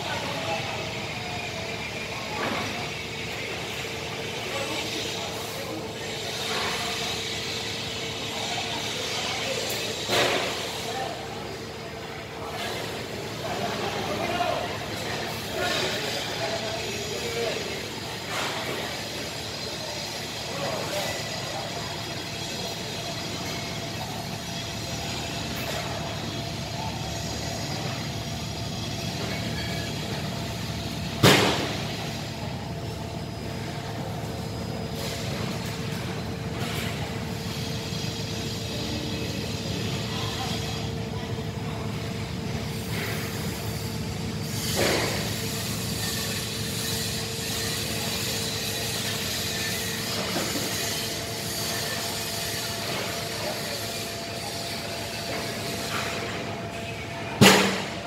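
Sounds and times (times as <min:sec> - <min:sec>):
industrial machinery hum: 0:00.0 - 0:58.0
loud sharp knock: 0:31.2 - 0:31.7, 0:57.4 - 0:57.9.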